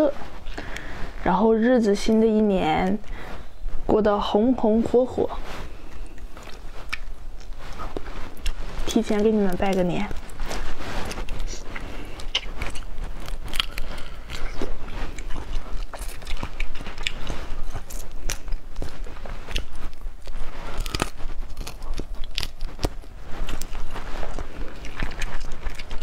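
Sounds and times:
chewing: 5.6 - 26.0
crawfish shells cracking: 9.6 - 26.0.

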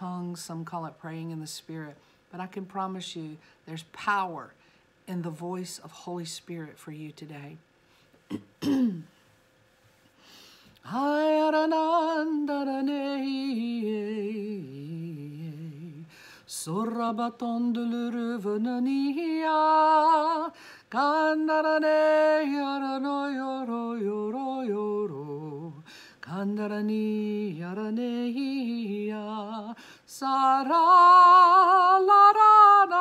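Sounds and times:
woman singing unaccompanied: 10.8 - 33.0.

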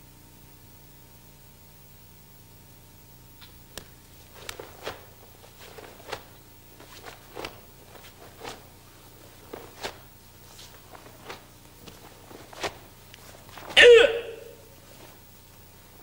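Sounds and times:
cloth swishing and snapping: 3.4 - 13.9, 14.8 - 15.3
bare feet shifting on floor: 3.8 - 15.3.

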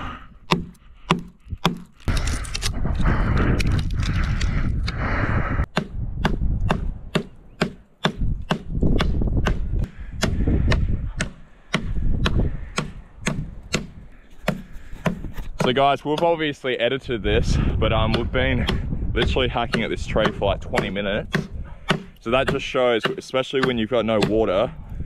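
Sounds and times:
blade chopping dry branch: 0.5 - 2.0, 18.1 - 24.6
wind rumble on microphone: 1.4 - 7.2, 8.2 - 14.1, 17.0 - 22.5, 24.4 - 25.0.

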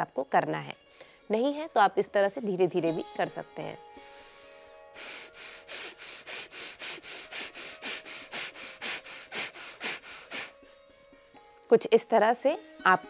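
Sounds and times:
soft background music: 0.0 - 13.0
man breathing rapidly through nose: 3.9 - 11.7.

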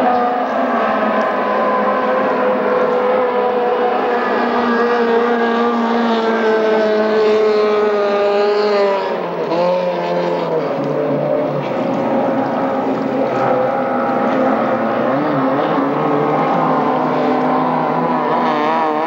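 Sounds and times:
racing boat engine high revs: 0.0 - 19.0.

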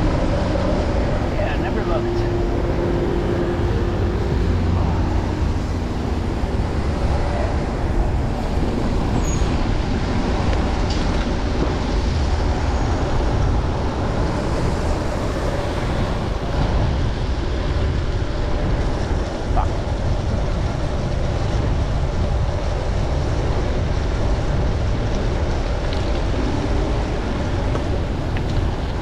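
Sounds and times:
city traffic noise: 0.0 - 29.0.

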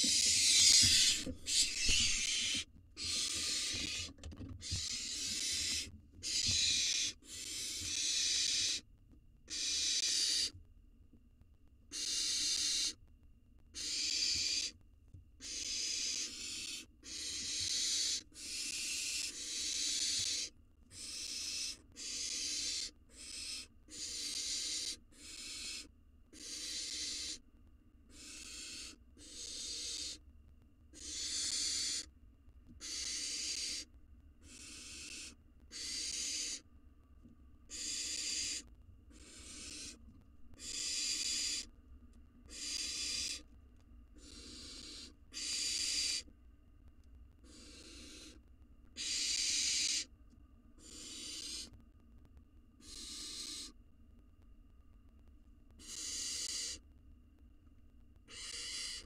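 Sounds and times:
owl chicks hissing begging calls: 0.0 - 8.8, 9.5 - 10.6, 11.9 - 13.0, 13.8 - 14.8, 15.4 - 27.4, 28.1 - 30.2, 31.0 - 32.1, 32.8 - 36.6, 37.7 - 41.7, 42.5 - 43.5, 44.2 - 46.3, 47.4 - 48.4, 49.0 - 50.1, 50.8 - 51.8, 52.8 - 53.8, 55.8 - 56.8, 58.3 - 59.0.

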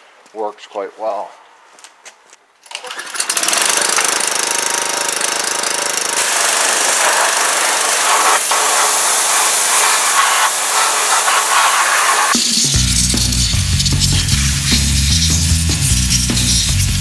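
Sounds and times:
pressure washer water jet hissing: 6.2 - 17.0.

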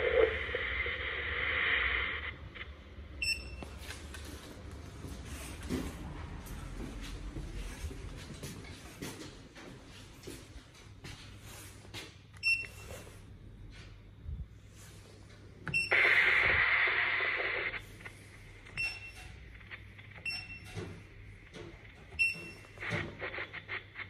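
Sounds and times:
short electronic beeps: 3.2 - 3.7, 18.7 - 19.4, 20.2 - 20.8.

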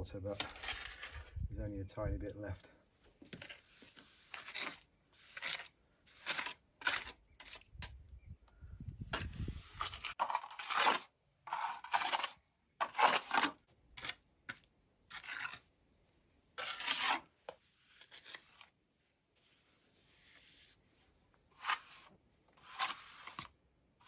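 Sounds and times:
trowel scraping cement on stone: 0.2 - 1.4, 3.2 - 8.0, 9.1 - 15.8, 16.6 - 18.8, 21.4 - 24.0.

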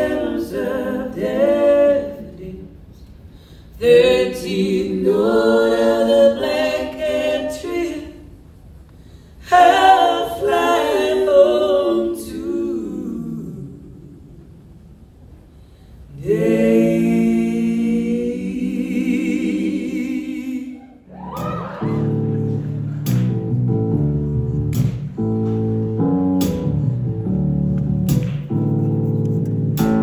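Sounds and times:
voices singing held chord: 0.0 - 2.8, 3.8 - 8.3, 9.4 - 14.4, 16.1 - 21.1.

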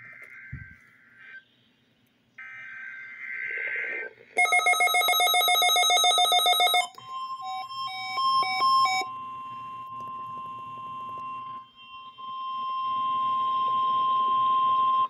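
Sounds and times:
high piercing alarm tone: 4.4 - 15.0.

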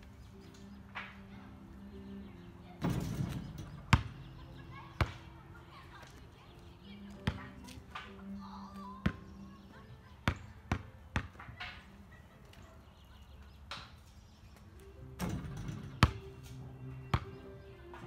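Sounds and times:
basketball bouncing on asphalt: 3.2 - 5.4, 7.1 - 8.2, 9.0 - 9.4, 10.2 - 11.6, 15.4 - 16.4, 17.1 - 17.4
ball banging on hoop: 15.2 - 16.3.

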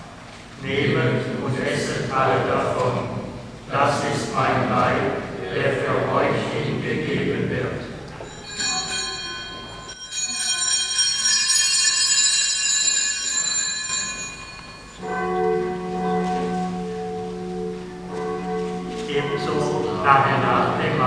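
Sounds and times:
altar bells ringing: 8.1 - 21.0
organ chord: 15.0 - 21.0.

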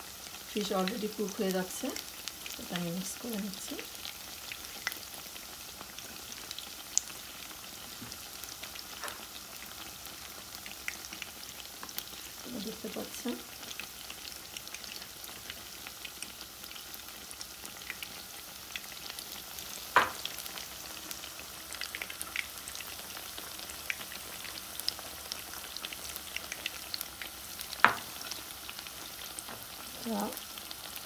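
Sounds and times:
fish frying in oil: 0.0 - 31.0.

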